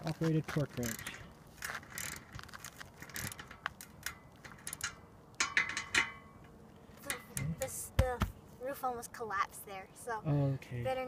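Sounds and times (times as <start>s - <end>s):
torque wrench ratcheting: 0.8s - 1.2s, 1.8s - 5.0s.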